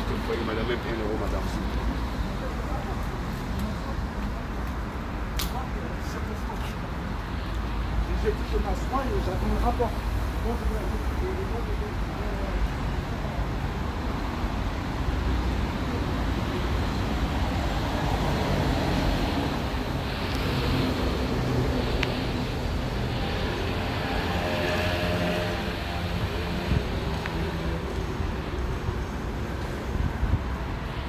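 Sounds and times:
passing cars rumble: 7.1 - 31.0.

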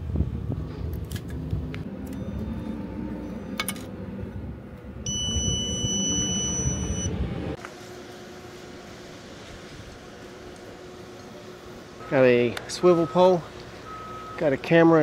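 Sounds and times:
steady electronic beep: 5.1 - 7.2.

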